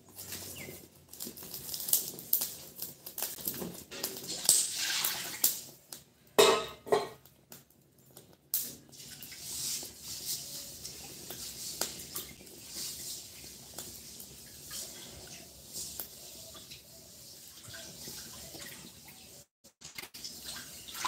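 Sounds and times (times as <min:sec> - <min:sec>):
wood fire crackling: 0:00.0 - 0:06.4, 0:07.1 - 0:21.0
clicks and clattering at stove: 0:00.1 - 0:04.8, 0:05.4 - 0:09.3.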